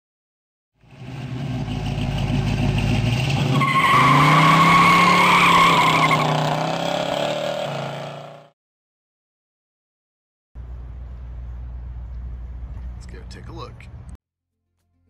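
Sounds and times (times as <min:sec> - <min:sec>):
car engine revving: 0:00.8 - 0:08.5
tires squealing: 0:00.9 - 0:08.5.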